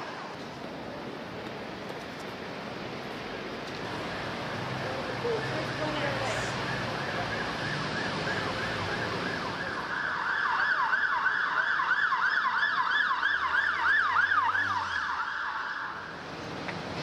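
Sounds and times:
city street traffic: 0.0 - 17.0
siren yelping: 5.2 - 16.2.

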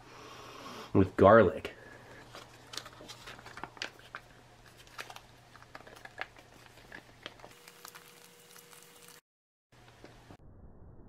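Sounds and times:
foil pouch crinkling: 2.4 - 9.2.

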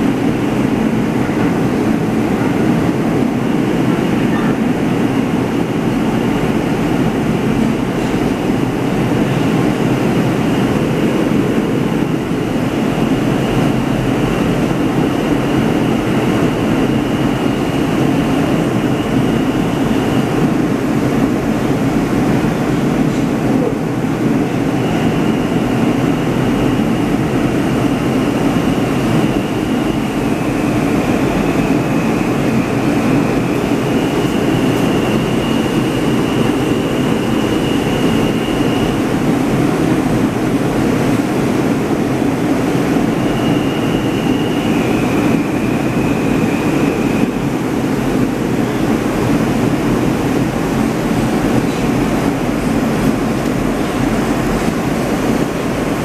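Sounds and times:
high train whine: 0.0 - 56.0
subway train rumble: 0.0 - 56.0.

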